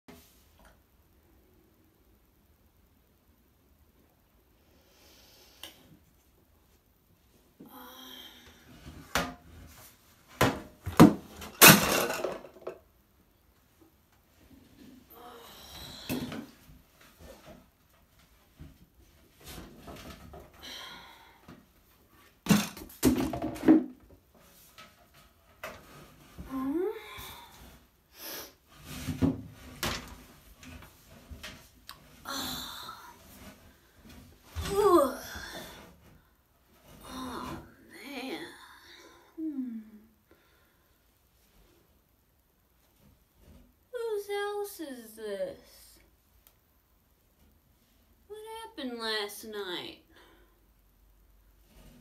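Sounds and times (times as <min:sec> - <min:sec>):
person breathing: 0:04.6 - 0:05.9, 0:20.6 - 0:21.6, 0:38.5 - 0:41.1
hard objects knocking and clattering: 0:10.4 - 0:12.9, 0:22.4 - 0:24.2
rustling: 0:21.6 - 0:37.9, 0:51.1 - 0:52.0.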